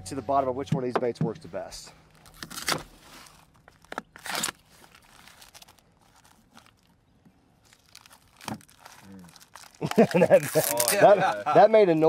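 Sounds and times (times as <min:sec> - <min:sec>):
plastic wrap crinkling: 0:02.1 - 0:11.3.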